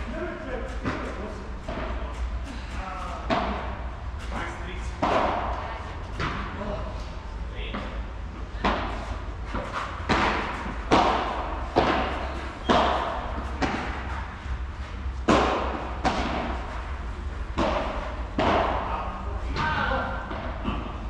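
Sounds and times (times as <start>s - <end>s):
ball hitting rackets: 3.2s - 6.6s, 7.7s - 21.0s
ball bouncing: 4.9s - 6.6s, 8.6s - 14.6s, 15.2s - 16.7s, 17.4s - 19.0s.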